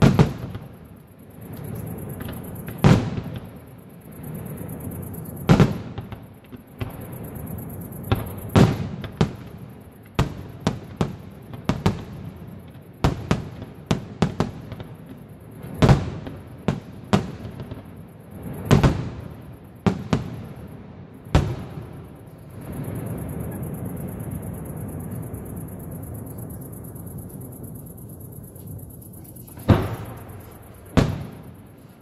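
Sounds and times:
firework bursts: 0:21.3 - 0:32.0.

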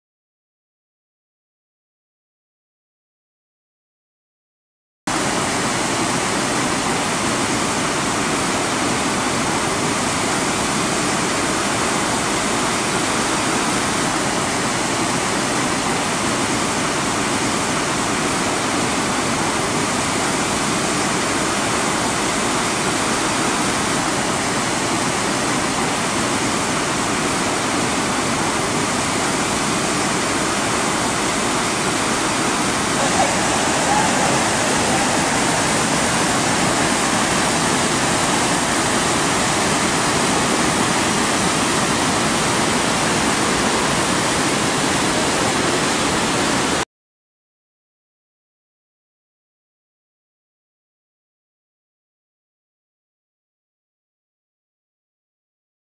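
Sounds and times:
waterfall roaring: 0:05.1 - 0:46.8.

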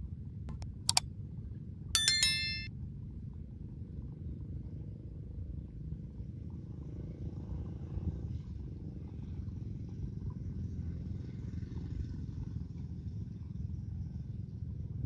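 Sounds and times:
bell-like notification chime: 0:02.0 - 0:02.7.

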